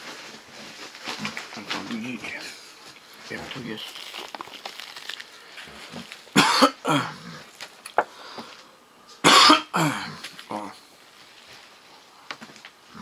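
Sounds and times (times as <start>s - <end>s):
man coughing hard: 6.4s - 7.2s, 9.2s - 10.2s.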